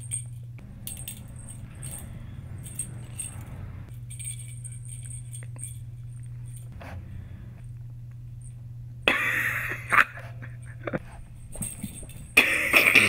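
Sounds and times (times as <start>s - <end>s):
small bell jingling in ball: 0.0s - 6.8s, 11.3s - 12.4s
steady low hum: 0.0s - 13.0s.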